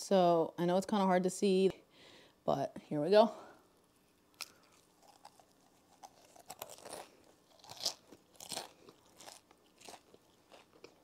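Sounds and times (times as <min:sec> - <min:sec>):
crunchy chip being chewed: 0:04.3 - 0:11.0.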